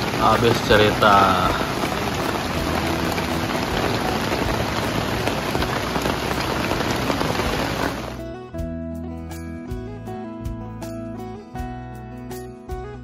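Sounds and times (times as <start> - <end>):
rain on a tarp: 0.0 - 8.2.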